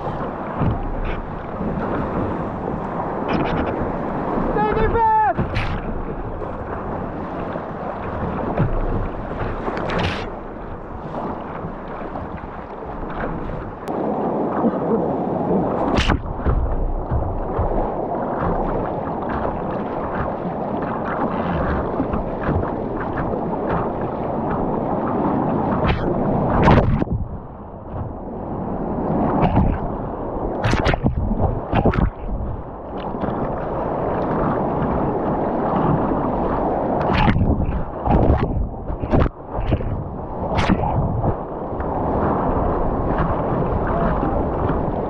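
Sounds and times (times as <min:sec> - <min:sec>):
water slapping hull: 0:00.0 - 0:45.0
whitewater rapids rushing: 0:03.2 - 0:08.6.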